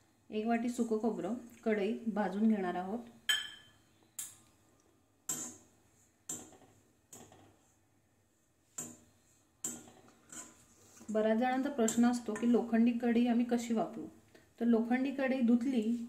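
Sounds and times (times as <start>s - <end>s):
spatula scraping iron pan: 9.6s - 11.0s.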